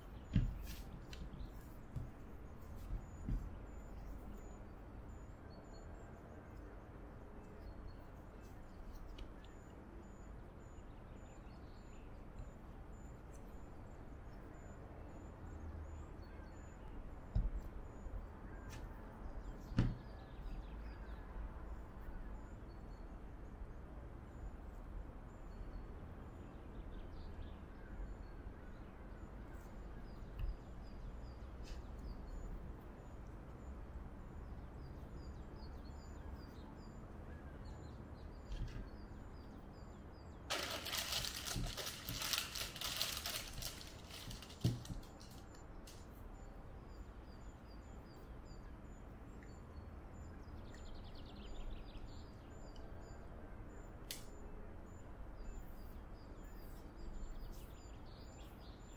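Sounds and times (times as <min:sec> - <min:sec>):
birds chirping faintly: 0:00.0 - 0:58.9
hands kneading dough: 0:00.1 - 0:04.4, 0:40.5 - 0:45.5
dough thump: 0:00.2 - 0:02.2, 0:19.7 - 0:20.1, 0:43.5 - 0:45.1
loud crinkly rustle: 0:40.5 - 0:46.0.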